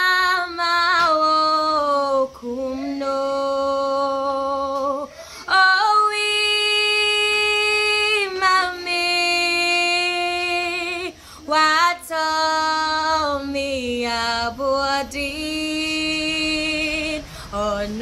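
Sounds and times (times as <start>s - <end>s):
woman singing unaccompanied: 0.0s - 18.0s
woman breathing in: 5.1s - 5.5s, 11.1s - 11.5s, 17.2s - 17.6s.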